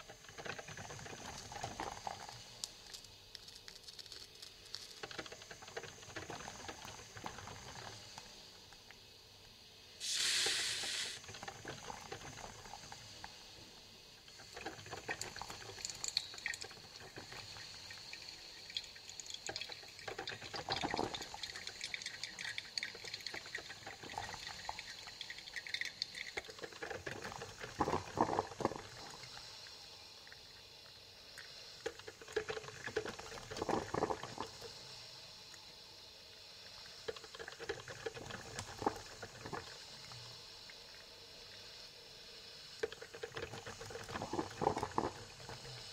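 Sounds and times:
coffee maker water gurgling: 0.0 - 9.1, 10.0 - 35.2, 36.6 - 42.0, 42.8 - 45.9
short loud hiss: 10.0 - 11.2.

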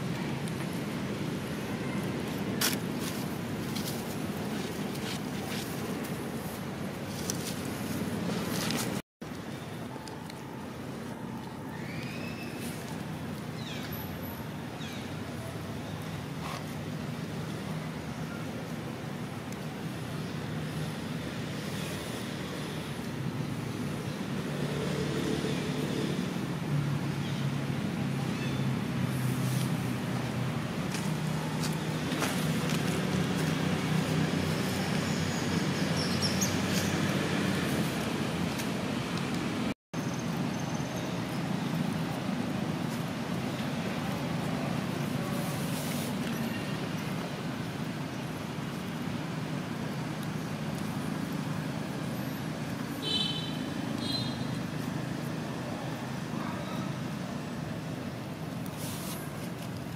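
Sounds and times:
outdoor background noise: 0.0 - 59.9
road traffic rumble: 0.0 - 59.9.

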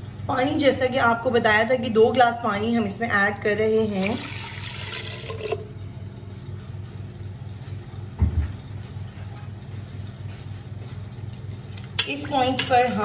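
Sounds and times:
low pulsing motor hum: 5.4 - 13.0.

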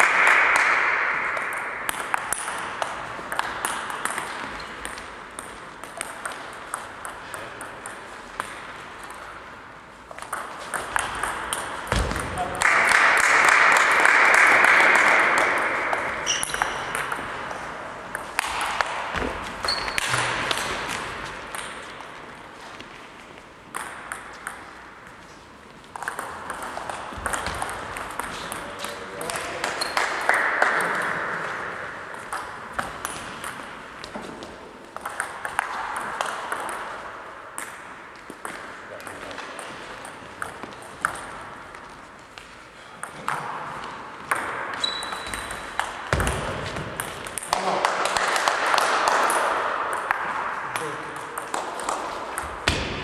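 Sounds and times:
audience applause: 12.6 - 15.5.

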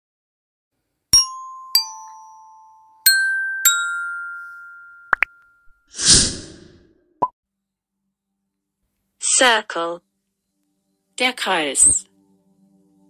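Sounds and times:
bell-like chime notes: 1.2 - 5.9.

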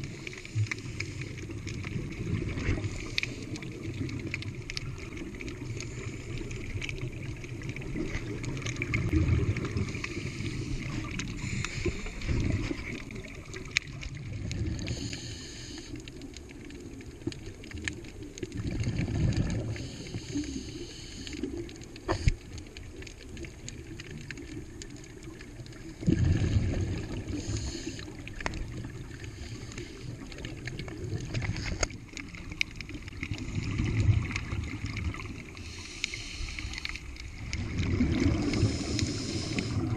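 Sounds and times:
scuba exhaust bubbles rumbling: 0.0 - 39.9
faint regulator hiss: 9.8 - 13.4, 14.7 - 17.4, 19.6 - 23.2, 26.7 - 32.5, 35.0 - 37.6, 38.3 - 39.9
sharp click underwater: 22.0 - 22.6, 31.2 - 32.0.

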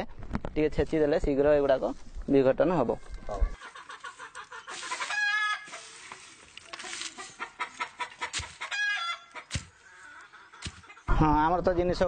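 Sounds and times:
chicken clucking: 3.2 - 11.2.

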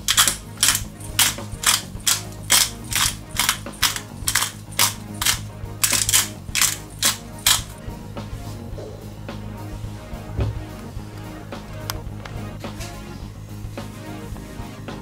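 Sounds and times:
pepper grinder grinding: 0.0 - 7.8.

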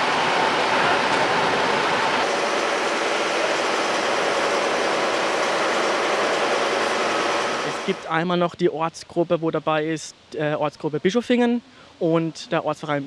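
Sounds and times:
machine running steadily: 0.0 - 8.2.

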